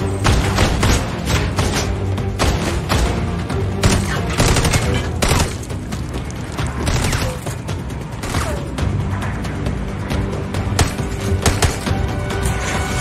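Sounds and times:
film music: 0.0s - 13.0s
rapid gunfire: 3.8s - 5.6s.

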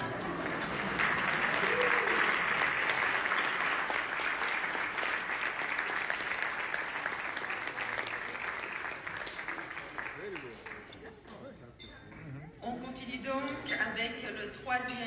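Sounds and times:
audience applauding: 0.0s - 11.2s.

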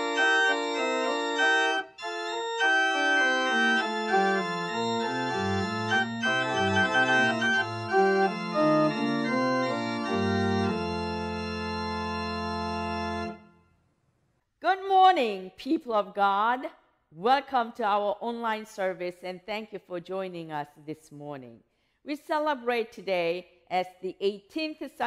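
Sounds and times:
church organ chords: 0.0s - 13.6s.

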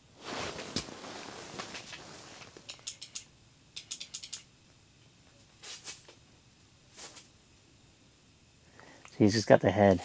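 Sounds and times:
soft rustle: 0.1s - 2.7s, 6.9s - 7.3s
fishing reel ratchet clicking: 2.8s - 4.4s.

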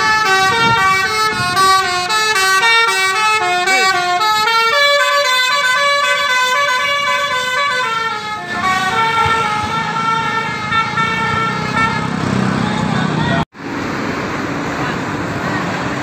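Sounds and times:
multi-trumpet air horn playing tune: 0.0s - 12.1s
bus engine and road noise: 0.0s - 16.0s.

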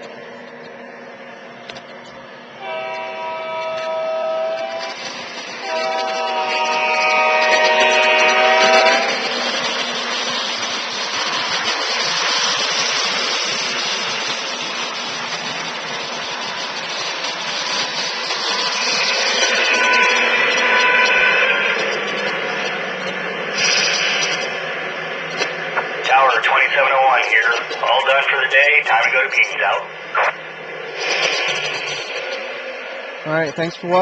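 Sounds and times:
model train wheels rolling: 1.6s - 29.8s, 30.8s - 34.0s
model train horn blasts: 2.6s - 5.0s, 5.6s - 9.4s, 19.5s - 21.5s.

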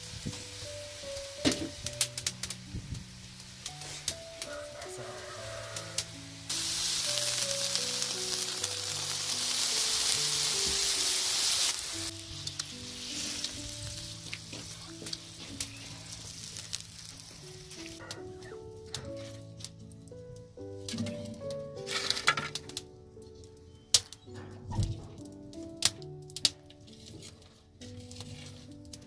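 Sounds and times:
water hissing in hot pot: 0.0s - 18.0s
background music melody: 0.0s - 29.0s.

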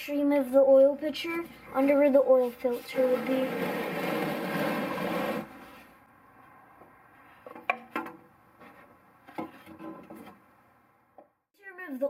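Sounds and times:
plastic pan scraping on concrete: 2.3s - 5.9s.

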